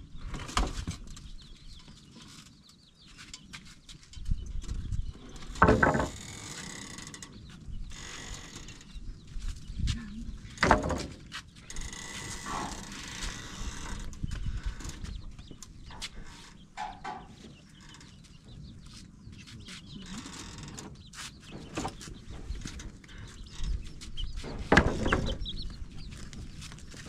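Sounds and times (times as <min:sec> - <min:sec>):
chicks peeping: 0:00.0 - 0:05.6, 0:07.2 - 0:27.0
wooden planks knocking and clattering: 0:05.4 - 0:06.5, 0:10.5 - 0:11.3, 0:24.4 - 0:25.4
chickens clucking: 0:11.6 - 0:20.2, 0:20.9 - 0:27.0.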